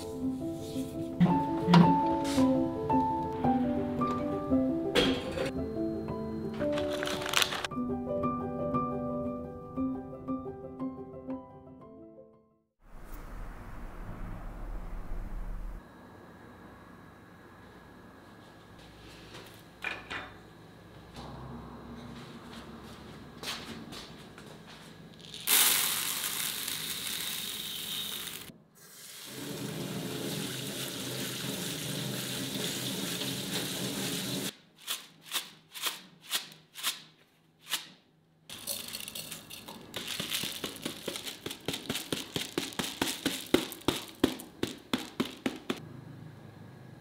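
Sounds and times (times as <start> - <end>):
wet rice rattling in colander: 25.4 - 28.5, 38.5 - 45.8
tap water running: 25.5 - 34.5.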